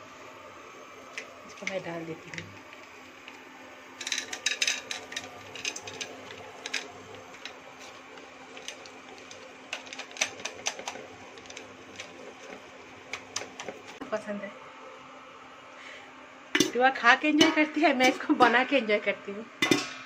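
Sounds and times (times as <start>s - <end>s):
popcorn kernels clattering in pan: 4.0s - 14.0s.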